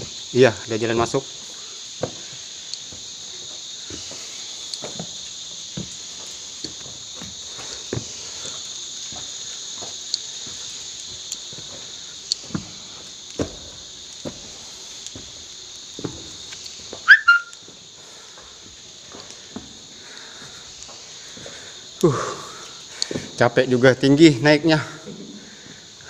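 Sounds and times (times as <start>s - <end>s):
insects chorus: 0.0s - 26.0s
footsteps on rock: 2.0s - 21.5s
loud high-pitched squeak: 17.1s - 17.6s.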